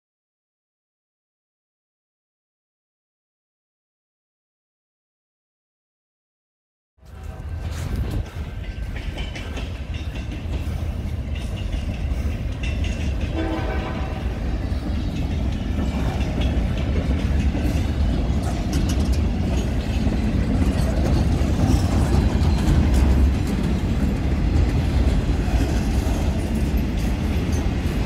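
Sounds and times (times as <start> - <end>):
train wheels clacking over rail joints: 7.1 - 28.0.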